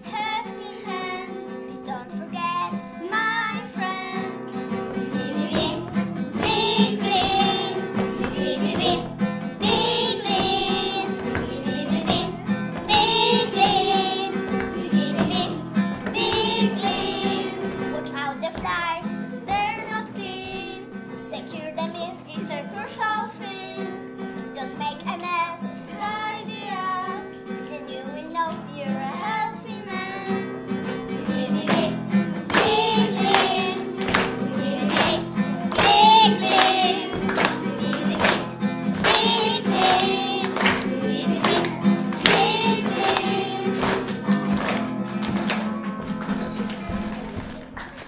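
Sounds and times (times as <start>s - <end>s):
children singing: 2.7s - 18.2s, 28.9s - 44.6s
instrumental accompaniment: 3.9s - 21.3s, 29.8s - 47.9s.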